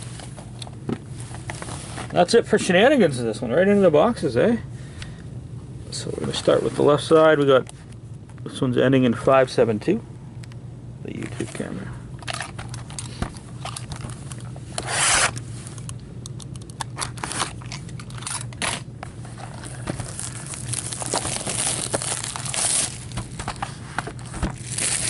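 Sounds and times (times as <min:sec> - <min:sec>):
loud plastic rip: 0:14.8 - 0:15.4, 0:17.0 - 0:18.9, 0:20.0 - 0:23.4, 0:24.4 - 0:25.0
plastic wrap crackling and rustling: 0:18.5 - 0:25.0.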